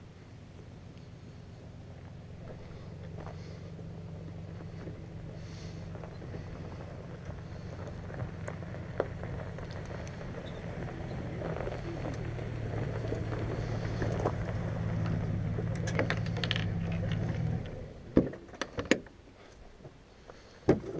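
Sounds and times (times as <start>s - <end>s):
vehicle engine humming: 0.0s - 20.9s
gear rattling on trailer: 4.4s - 19.0s.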